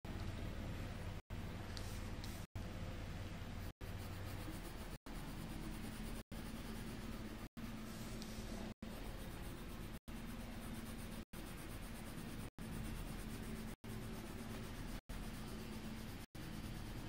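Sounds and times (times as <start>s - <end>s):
colored pencil scratching on paper: 3.6s - 17.0s.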